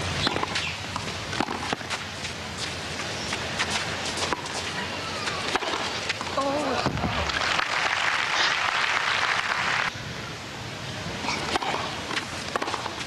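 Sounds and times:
stadium crowd applauding: 7.2 - 9.9.

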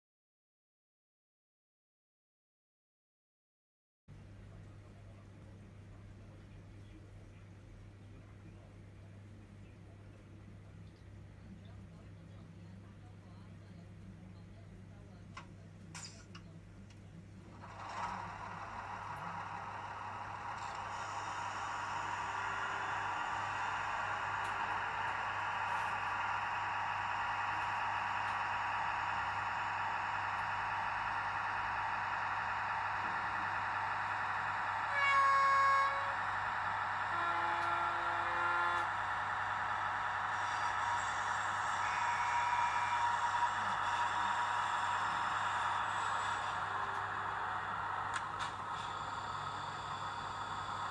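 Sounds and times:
model train running drone: 17.2 - 50.9
train horn blasts: 17.7 - 44.9.

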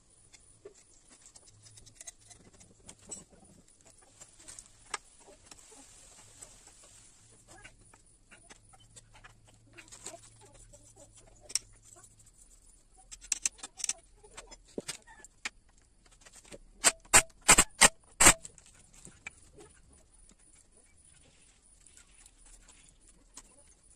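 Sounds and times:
impact wrench bursts: 16.8 - 18.4.

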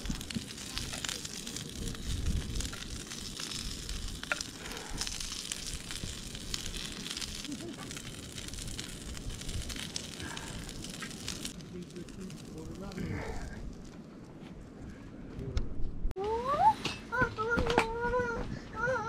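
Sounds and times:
meat sizzling on a griddle: 0.0 - 13.6.

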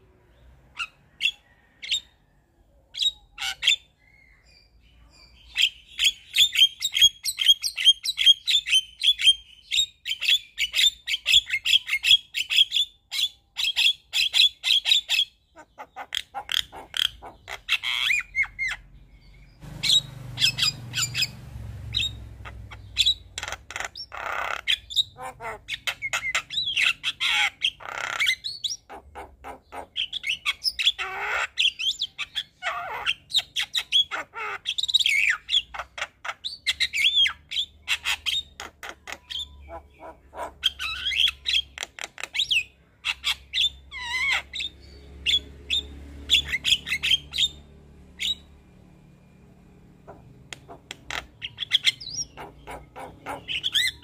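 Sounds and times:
bird calls and chirps: 0.0 - 54.0
bird squawks and whistles: 50.1 - 54.0.

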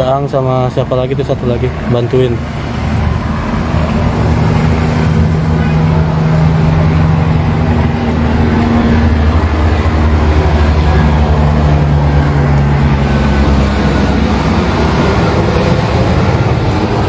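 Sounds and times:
heavy machine engine idling: 0.0 - 17.0.

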